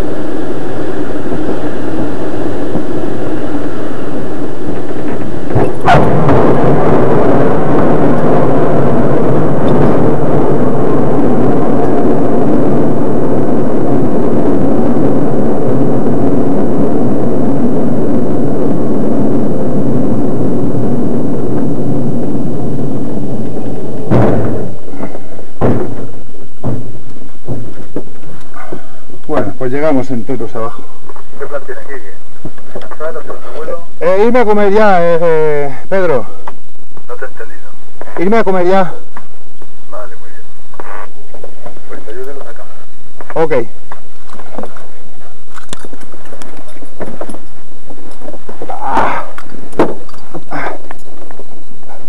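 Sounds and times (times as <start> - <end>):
air rushing: 0.0 - 29.2
glider landing bump: 4.4 - 13.2, 23.4 - 28.3
knocks: 24.1 - 28.2.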